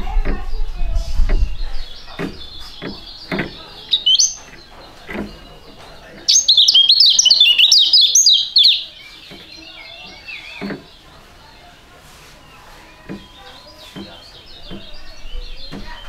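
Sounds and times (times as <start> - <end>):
bird chirping and twittering: 0.0 - 16.0
soft knocks: 1.2 - 6.3, 13.0 - 16.0.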